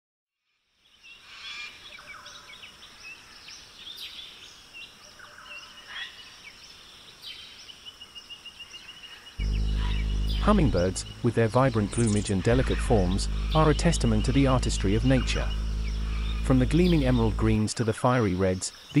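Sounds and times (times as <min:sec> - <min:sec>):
wild birds chirping: 0:08.6 - 0:17.6.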